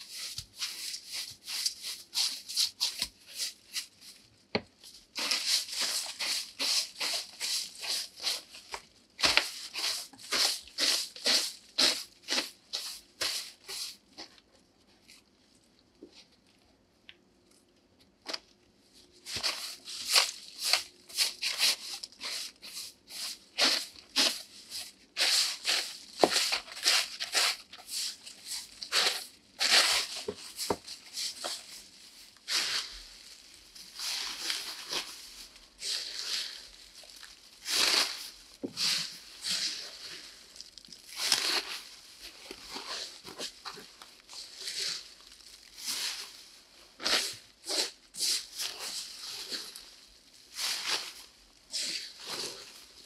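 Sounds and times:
broom sweeping leaves on wood: 0.0s - 4.3s, 5.0s - 14.1s, 19.2s - 53.0s
plastic bag rustling: 0.0s - 14.5s, 18.3s - 53.0s
dry leaves rustling and crunching: 28.2s - 47.4s.

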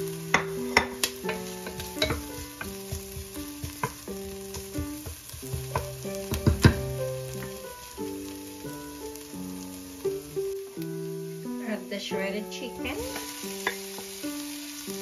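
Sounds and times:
onions sizzling: 0.0s - 15.0s
spoon knocking and scraping pot: 0.3s - 7.6s, 13.0s - 14.2s.

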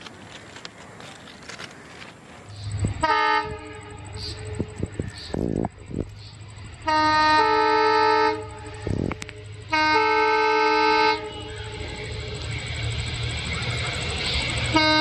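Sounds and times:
train rumbling: 0.0s - 15.0s
locomotive horn blasts: 2.9s - 5.0s, 6.8s - 12.0s, 14.4s - 15.0s.

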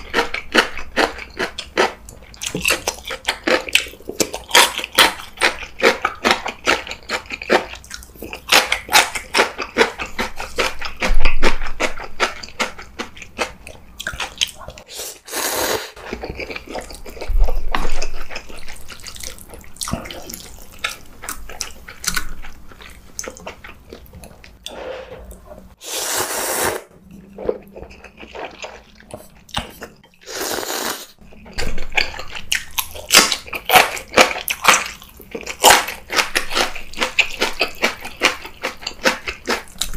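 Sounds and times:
close chewing and biting: 0.0s - 24.8s, 27.0s - 39.9s
noodle slurps: 14.8s - 16.0s, 25.8s - 26.9s, 30.2s - 31.2s.

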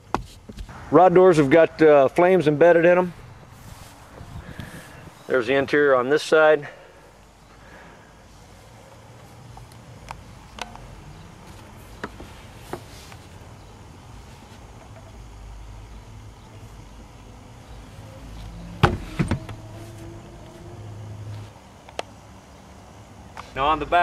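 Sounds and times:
low rumble: 3.0s - 5.3s
knocks on a car seat: 18.8s - 19.4s.

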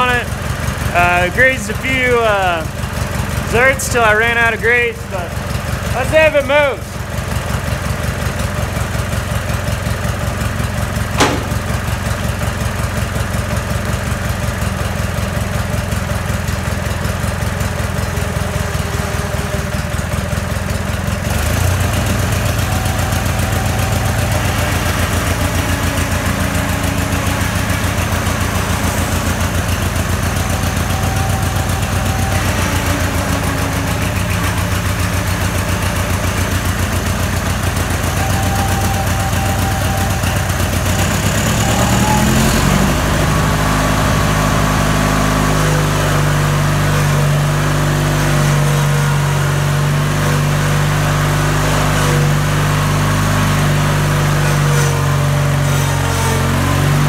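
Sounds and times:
riding mower engine idling: 0.0s - 55.6s
sharp click: 11.2s - 11.8s.

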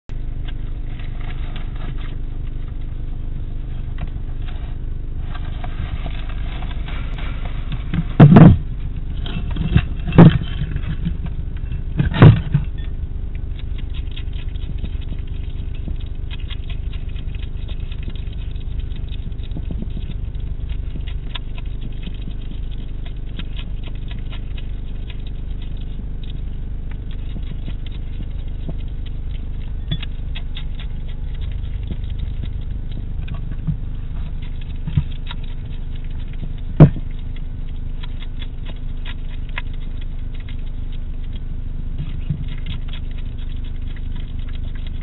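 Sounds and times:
low hum: 0.1s - 45.0s
hedgehog chewing clicks: 7.7s - 45.0s.

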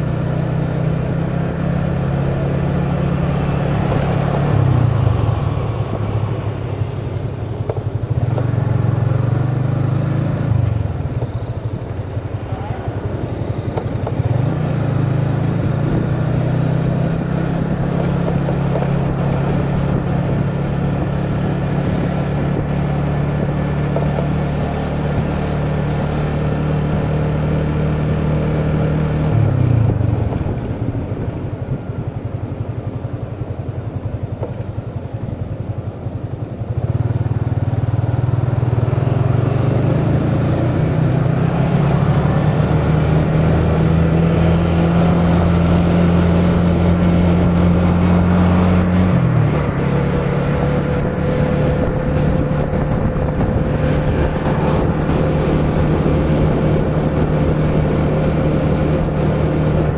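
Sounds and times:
motorcycle engine cruising: 0.0s - 59.9s
riding noise: 39.8s - 59.9s.

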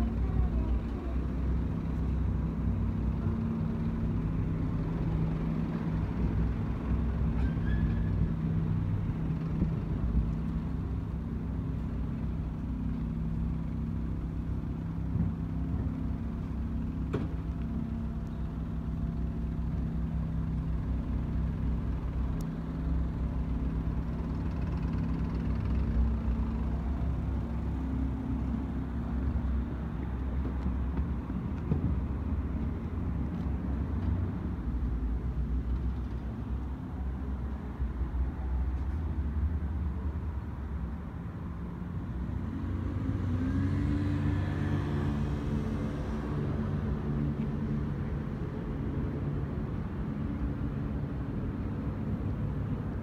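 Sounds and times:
engine idling: 8.4s - 31.5s.

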